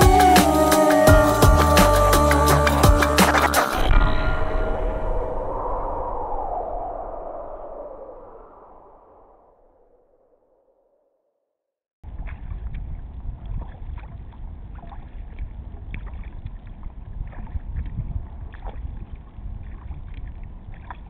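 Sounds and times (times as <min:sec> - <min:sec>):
wind rumble on microphone: 0:02.8 - 0:09.7, 0:12.0 - 0:21.0
paddle splashing in water: 0:12.2 - 0:21.0.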